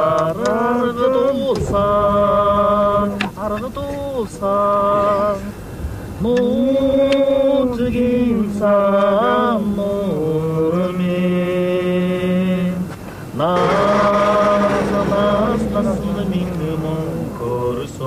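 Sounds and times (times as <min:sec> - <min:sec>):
chanted singing: 0:13.4 - 0:18.0
low drone: 0:13.4 - 0:18.0.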